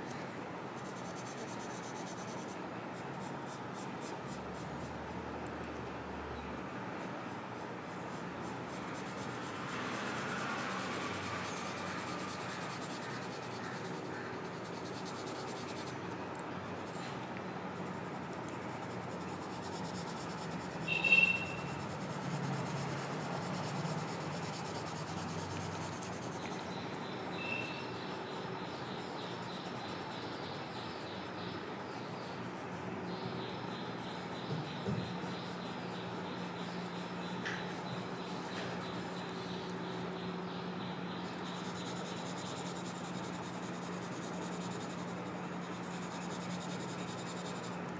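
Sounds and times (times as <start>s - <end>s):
pencil scratching on paper: 0.8s - 2.6s, 7.6s - 16.0s, 18.0s - 32.3s, 41.3s - 47.8s
high-pitched chirp: 20.9s - 21.7s, 27.4s - 28.1s.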